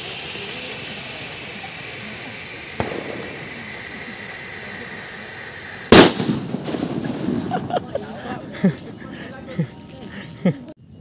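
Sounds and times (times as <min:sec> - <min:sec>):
firecracker bang with echo: 0:00.0 - 0:08.2
firecracker fuse hissing: 0:00.0 - 0:10.8.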